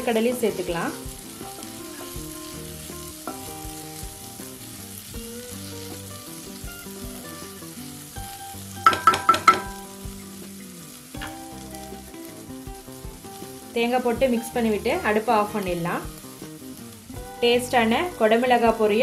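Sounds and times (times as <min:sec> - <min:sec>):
stir-fry sizzling: 0:00.0 - 0:19.0
spatula knocking on pan: 0:08.8 - 0:10.3.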